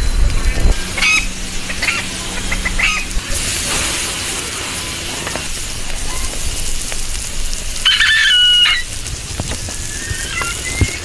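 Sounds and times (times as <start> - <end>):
wood fire hissing and crackling: 0.0 - 11.0
rooster crowing: 7.8 - 8.9.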